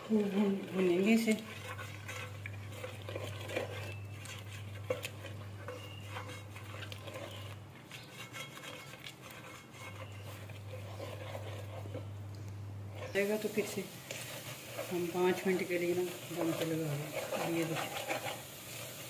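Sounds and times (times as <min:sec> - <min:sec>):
steady low hum: 0:00.0 - 0:18.3
spatula scraping metal pot: 0:00.0 - 0:19.0.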